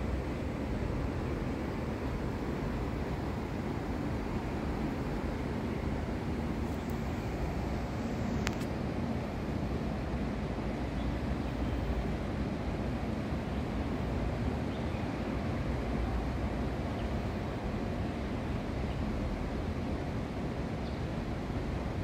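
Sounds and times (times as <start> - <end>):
low outdoor background rumble: 0.0 - 22.0
brief sharp click: 8.4 - 8.7.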